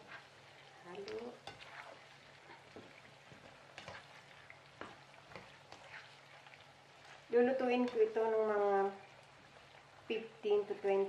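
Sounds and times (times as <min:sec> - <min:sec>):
spatula scraping pan: 0:00.0 - 0:08.2
potatoes sizzling in oil: 0:00.0 - 0:11.0.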